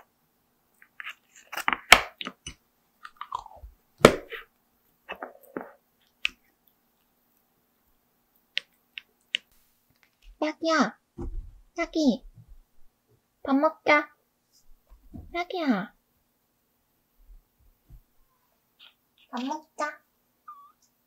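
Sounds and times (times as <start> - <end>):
spoon squelching and scraping food: 0.7 - 3.7.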